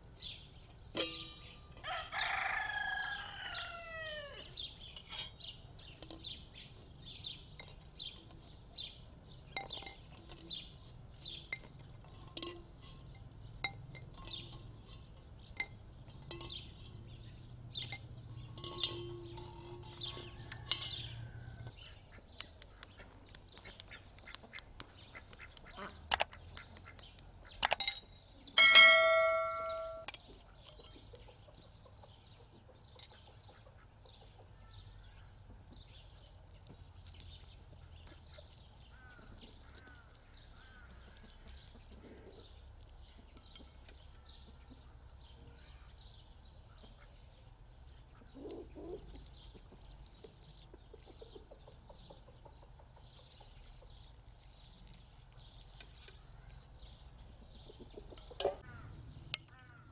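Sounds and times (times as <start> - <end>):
small birds chirping: 0.0 - 59.9
egg shell cracking and peeling: 22.4 - 27.8, 36.2 - 42.1, 48.3 - 51.8, 53.2 - 57.2
farmyard fowl calling: 22.9 - 27.0.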